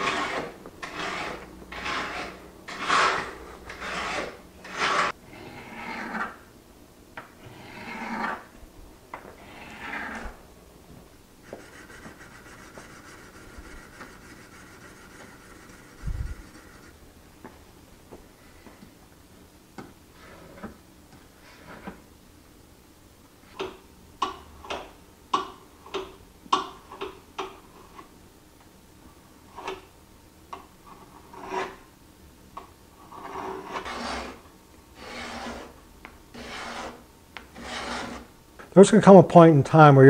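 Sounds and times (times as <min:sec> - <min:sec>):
rubbing on sharpening stone: 0:00.0 - 0:05.1, 0:11.5 - 0:17.0, 0:35.0 - 0:37.0, 0:37.6 - 0:38.3
file scraping steel: 0:00.0 - 0:06.4, 0:09.4 - 0:10.3, 0:11.5 - 0:17.0, 0:31.0 - 0:31.8, 0:33.0 - 0:38.3.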